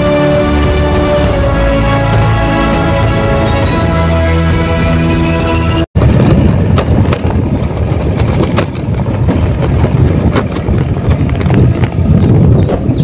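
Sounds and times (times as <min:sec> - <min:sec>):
theme music jingle: 0:00.0 - 0:05.9
vehicle rumbling on dirt track: 0:03.3 - 0:13.0
wind buffeting microphone: 0:06.0 - 0:13.0.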